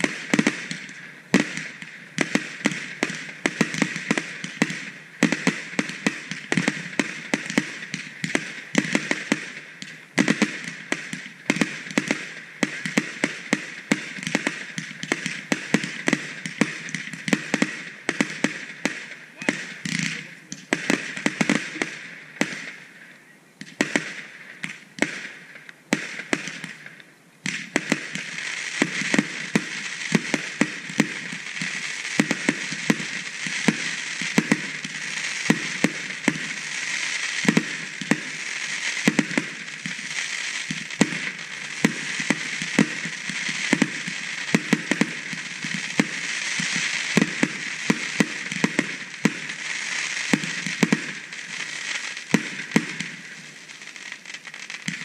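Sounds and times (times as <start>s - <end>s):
fireworks bangs: 0.0s - 55.0s
fireworks crackling and popping: 0.0s - 55.0s.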